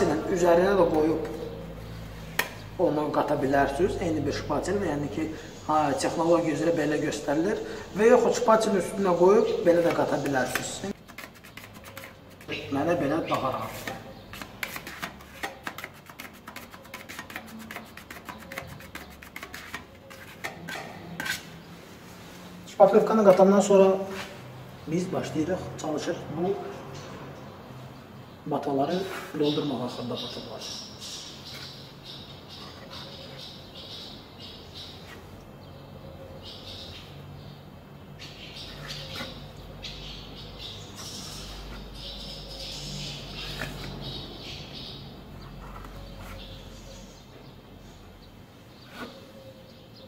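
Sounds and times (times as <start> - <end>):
putty knife scraping filler: 9.7 - 12.6, 13.3 - 21.6.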